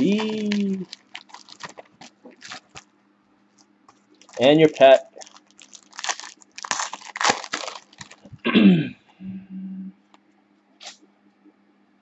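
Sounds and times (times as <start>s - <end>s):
plastic wrapper crinkling: 0.0s - 8.4s.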